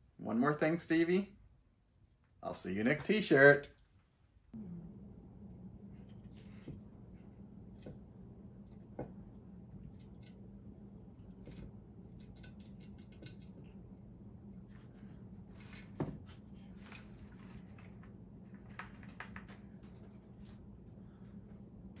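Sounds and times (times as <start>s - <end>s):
low room hum: 0.0s - 22.0s
rabbit gnawing wooden toy: 8.6s - 14.0s.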